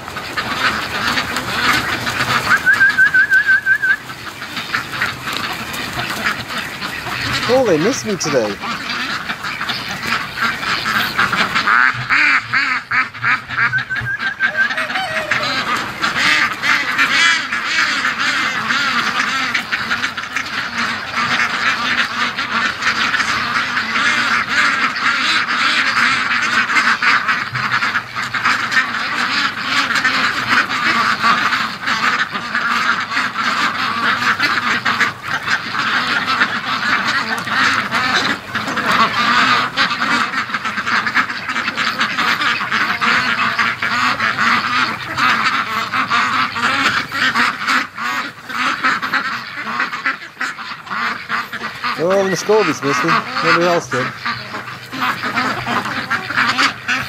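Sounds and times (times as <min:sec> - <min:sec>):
flock of ducks quacking: 0:00.0 - 0:57.0.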